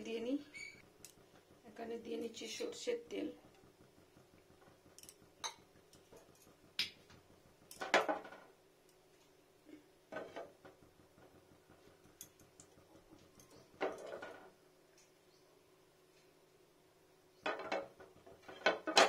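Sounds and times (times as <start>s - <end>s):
frying pan clattering on burner grate: 4.5s - 8.6s, 10.1s - 14.6s, 17.4s - 19.0s.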